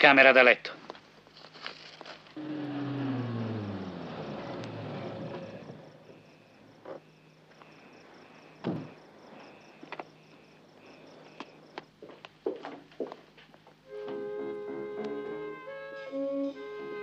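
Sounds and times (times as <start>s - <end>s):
crickets chirping: 0.0s - 17.0s
car engine: 2.2s - 7.3s.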